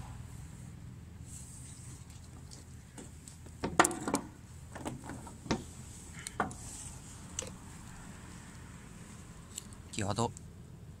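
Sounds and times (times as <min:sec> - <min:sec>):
magnet and scrap iron knocking: 0:03.0 - 0:06.7.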